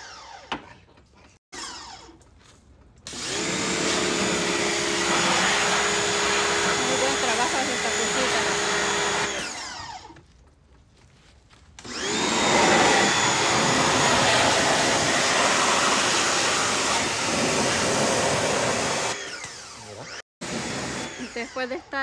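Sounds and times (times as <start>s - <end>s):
pressure washer motor whining: 3.1s - 10.2s, 11.8s - 21.9s.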